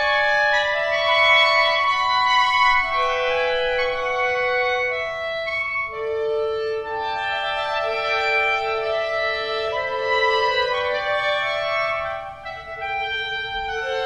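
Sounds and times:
clarinet ensemble holding chords: 0.0 - 14.0.

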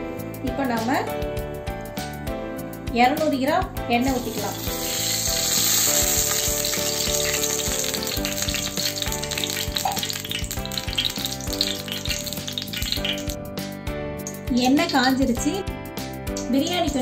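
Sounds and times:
background music: 0.0 - 17.0
oil sizzling in a pot: 4.0 - 13.4, 14.2 - 15.6.

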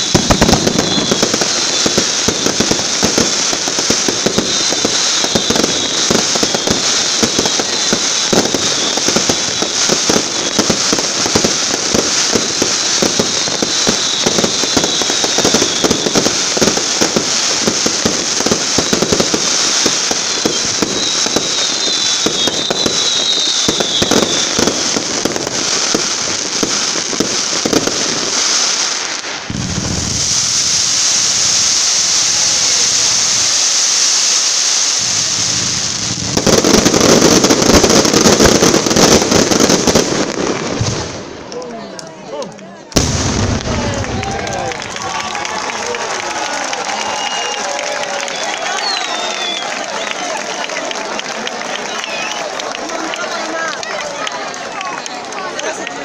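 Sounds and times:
faint falling whistles: 0.0 - 2.7, 13.2 - 16.4, 20.2 - 24.8, 46.8 - 50.3
hiss of sparks shooting: 0.0 - 39.8
fireworks crackling: 0.0 - 56.0.

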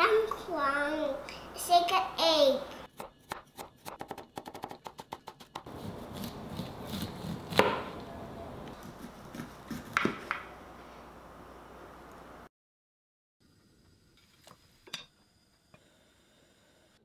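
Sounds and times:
cleaver chopping on wooden board: 3.0 - 8.0, 8.8 - 10.4
knife scraping corn cob: 4.6 - 7.6.

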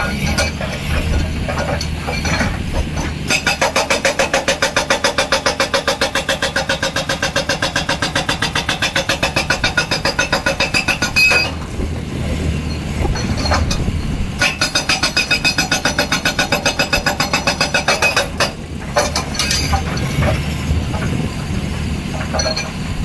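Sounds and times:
hydraulic rock breaker hammering: 0.0 - 12.0, 12.7 - 23.0
low machine rumble: 11.2 - 14.5.

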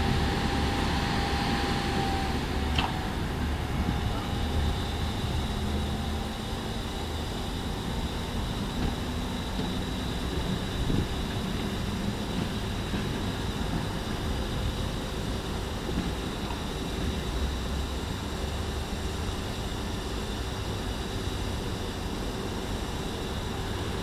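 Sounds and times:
distant city traffic: 0.0 - 24.0
tram humming and rolling on track: 0.0 - 24.0
wind: 0.0 - 24.0.

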